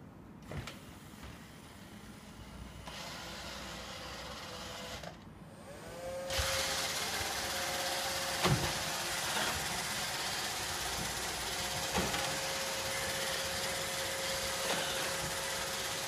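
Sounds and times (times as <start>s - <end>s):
robot vacuum whirring: 2.8s - 16.0s.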